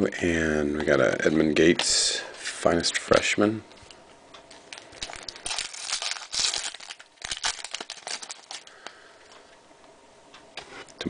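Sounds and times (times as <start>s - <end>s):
foil wrapper crinkling and tearing: 4.7s - 9.0s.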